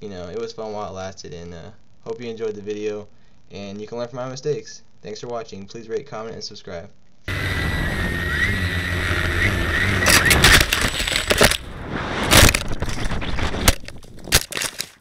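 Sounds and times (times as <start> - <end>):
drone motors whining: 7.3 - 13.8
drone crashing through branches: 7.3 - 14.6.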